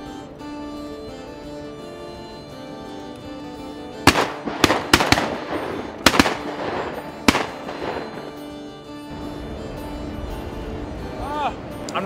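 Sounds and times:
shotgun blasts echoing: 4.1 - 8.4.

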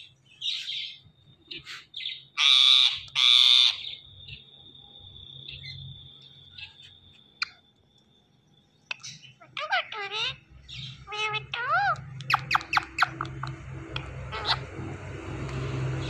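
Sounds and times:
parakeet harsh screeches: 2.4 - 3.9, 9.5 - 13.4, 14.0 - 14.7
parakeet chirps: 6.5 - 7.6, 8.8 - 16.0.

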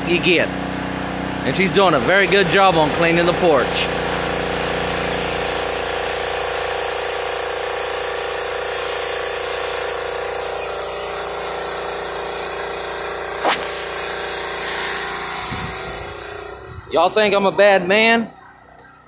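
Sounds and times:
pressure washer motor humming: 0.0 - 19.0
water jet hissing on wood: 1.5 - 16.7.

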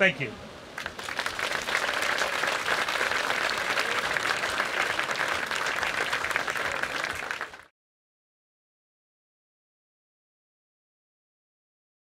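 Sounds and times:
audience applauding: 0.8 - 7.7.

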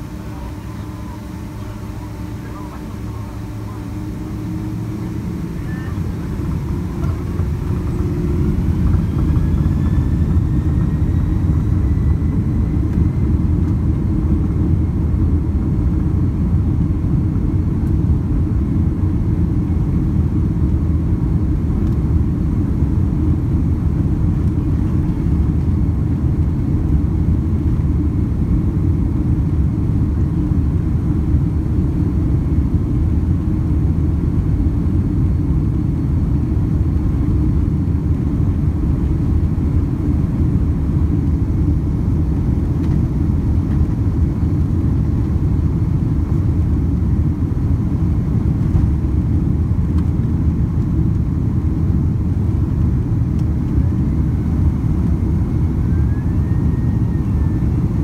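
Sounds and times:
jet engines spooling up: 0.0 - 14.2.

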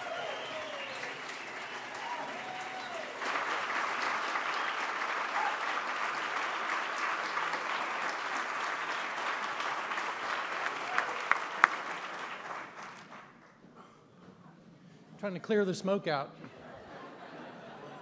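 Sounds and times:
audience applauding: 0.0 - 13.5.

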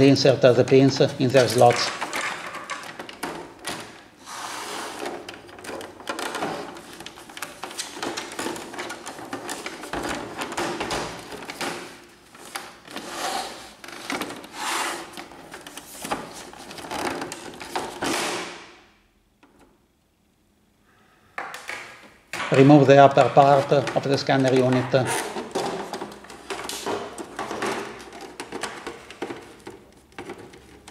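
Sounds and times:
plastic scraping: 0.4 - 18.6, 22.4 - 30.9
plastic cover clicking and knocking: 1.4 - 4.0, 15.2 - 18.6, 21.4 - 30.9.

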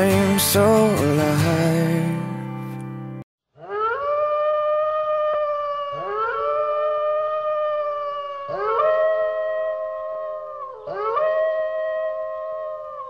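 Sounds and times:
wolves howling: 3.6 - 13.0.

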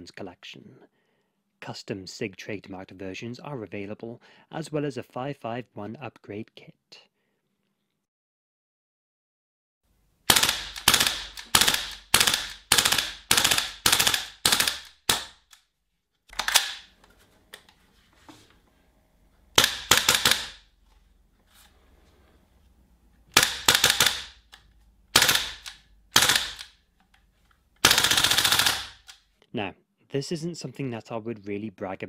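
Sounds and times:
airsoft rifle shots: 10.3 - 15.4, 19.6 - 20.6, 23.3 - 24.4, 25.1 - 26.7, 27.8 - 29.1
bolt cycling clack: 16.3 - 16.9.

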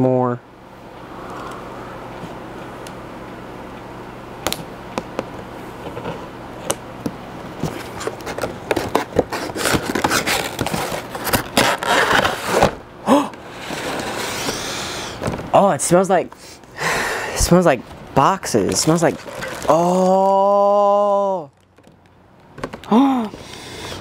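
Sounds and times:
cardboard packaging crackling: 7.6 - 12.8, 18.6 - 20.5.

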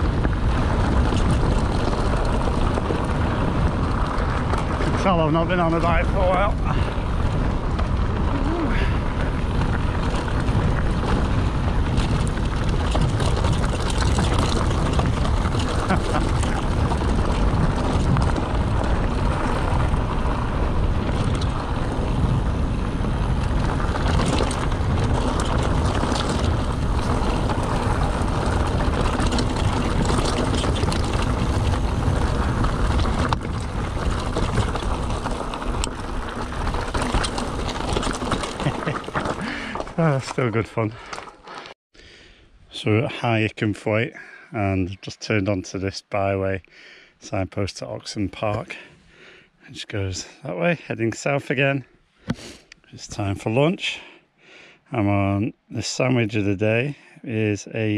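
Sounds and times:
wind rushing over microphone: 0.0 - 41.0
bike clicks and rattles: 0.0 - 41.8
bike tyres rumbling over ground: 0.0 - 41.8.

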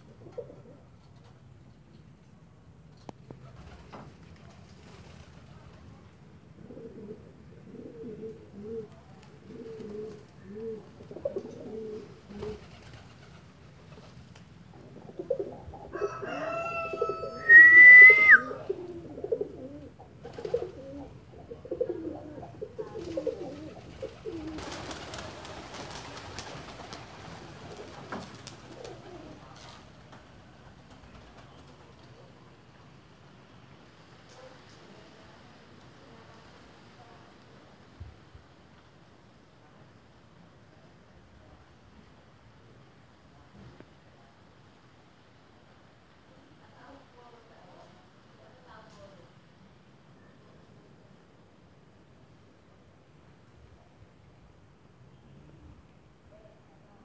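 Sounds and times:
pigeons cooing: 0.0 - 1.0, 6.6 - 13.4, 14.7 - 16.2, 16.9 - 26.0, 27.2 - 29.6
wings flapping: 3.4 - 5.8, 12.3 - 14.5, 20.2 - 20.9, 22.8 - 32.2.

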